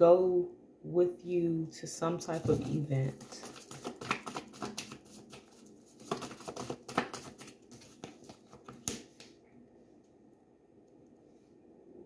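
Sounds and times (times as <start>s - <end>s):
cards being shuffled: 2.3s - 9.4s.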